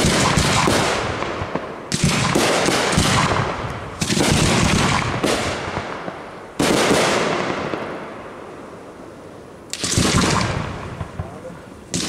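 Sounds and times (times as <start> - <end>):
firework shells bursting: 9.7 - 12.0.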